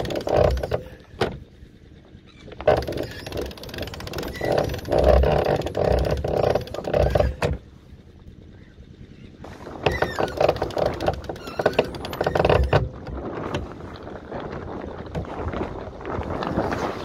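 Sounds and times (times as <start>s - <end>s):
sailcloth rubbing and rustling: 11.7s - 17.0s.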